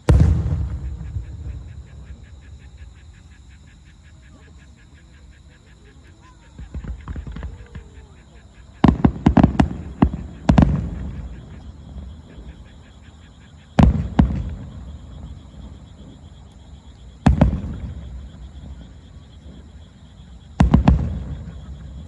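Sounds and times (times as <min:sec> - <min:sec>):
distant firework booms: 0:00.0 - 0:03.6, 0:06.6 - 0:12.6, 0:13.7 - 0:16.4, 0:17.2 - 0:22.0.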